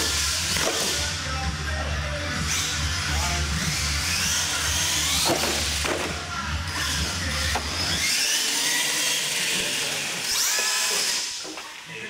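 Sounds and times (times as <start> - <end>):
background music: 0.0 - 8.4
toy truck motor whining: 0.0 - 11.9.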